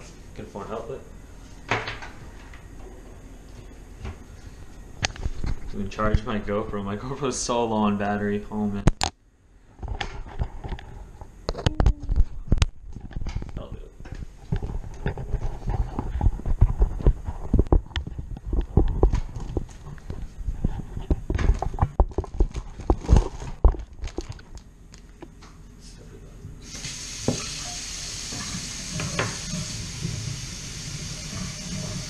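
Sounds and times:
camera knocking and rubbing: 14.1s - 23.8s
tap water running into sink: 26.6s - 32.0s.

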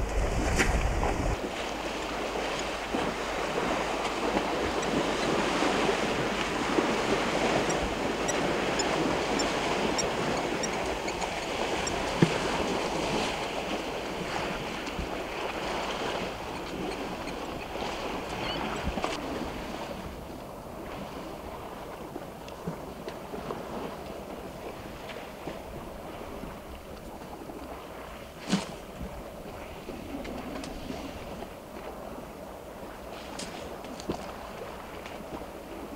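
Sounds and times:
elephants splashing in water: 0.0s - 26.6s
wind: 0.0s - 35.9s.

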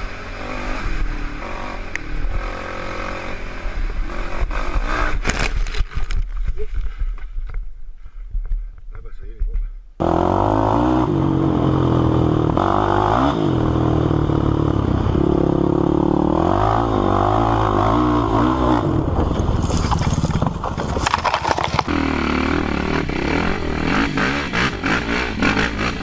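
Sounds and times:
quad engine revving: 0.0s - 5.3s, 10.0s - 26.0s
knocks and rattles over rough ground: 4.6s - 9.7s, 19.0s - 22.0s.

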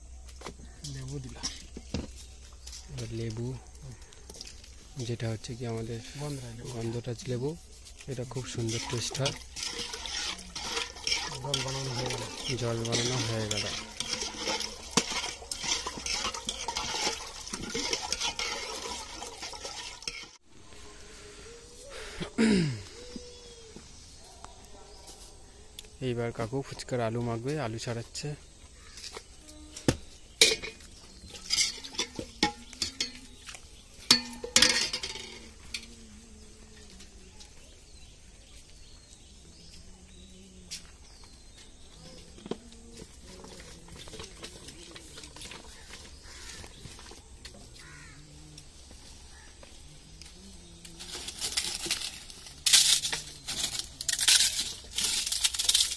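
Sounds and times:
liquid sloshing: 8.3s - 20.4s
ladle clinking in metal pot: 8.7s - 20.4s, 30.4s - 33.4s, 34.0s - 35.8s.

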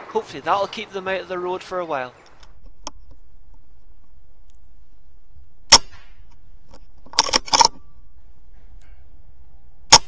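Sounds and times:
air rifle shot: 5.7s - 6.2s
metallic clicks: 5.7s - 8.0s.

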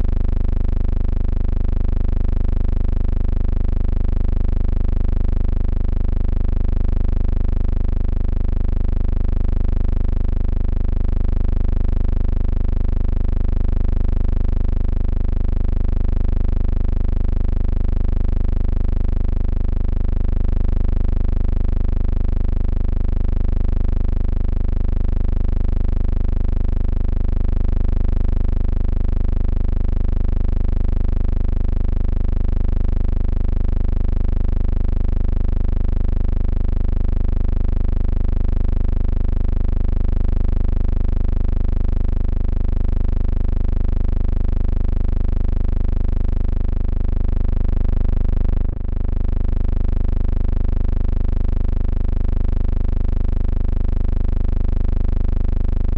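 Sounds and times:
steady low buzzing hum: 47.4s - 49.2s.

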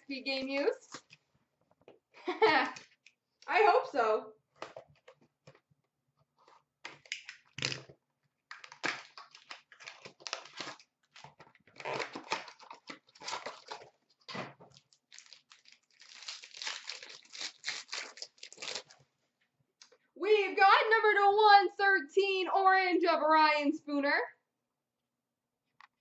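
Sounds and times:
packaging crinkling: 8.5s - 19.0s
cardboard box tearing: 11.8s - 13.9s.

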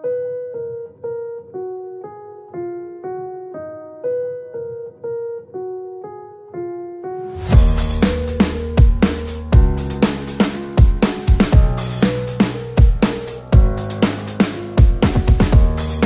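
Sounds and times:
keyboard melody: 0.0s - 16.0s
drum beat with heavy bass: 7.5s - 16.0s.

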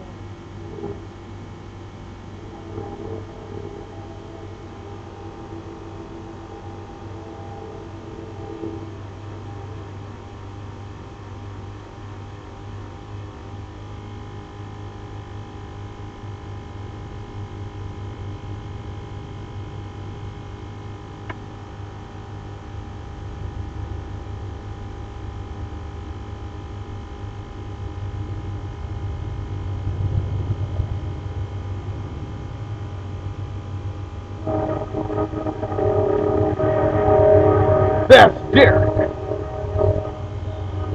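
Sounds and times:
machine hum: 0.0s - 14.2s, 31.7s - 40.9s
fluttering low rumble: 0.6s - 10.7s, 33.8s - 40.9s.

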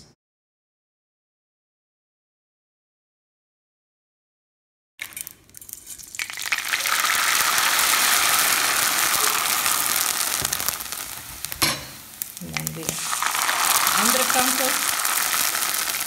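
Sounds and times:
noodles sizzling in hot oil: 5.0s - 16.0s.

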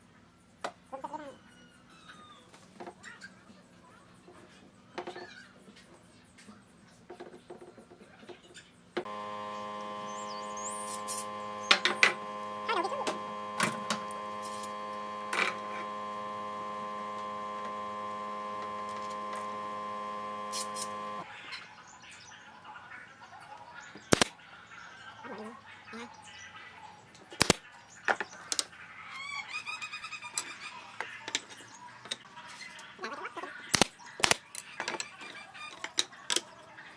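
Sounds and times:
steady machine hum: 9.0s - 21.3s
nail gun shot: 24.1s - 24.3s, 27.4s - 27.6s, 33.7s - 34.4s.

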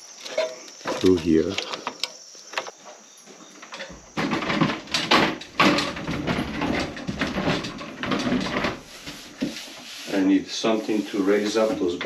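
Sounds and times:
wood scraping on floor: 3.8s - 12.0s.

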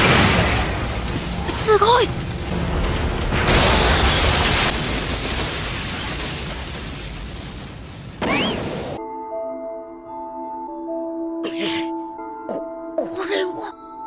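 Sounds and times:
explosion blast with rumble: 0.0s - 9.0s
soft background music: 9.0s - 14.0s.

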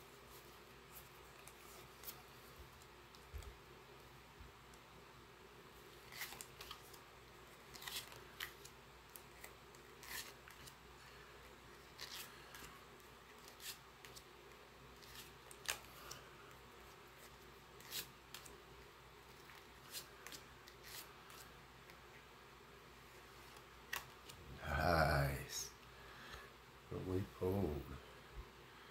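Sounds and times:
room hiss: 0.0s - 28.9s
cards sliding and snapping: 6.0s - 7.0s, 7.6s - 10.8s, 11.9s - 16.2s, 17.2s - 18.6s, 19.3s - 22.0s, 23.4s - 24.4s.

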